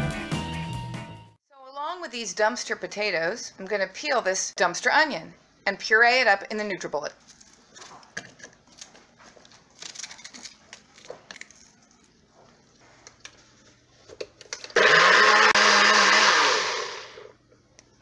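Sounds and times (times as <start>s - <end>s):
blender motor running: 14.8s - 17.3s.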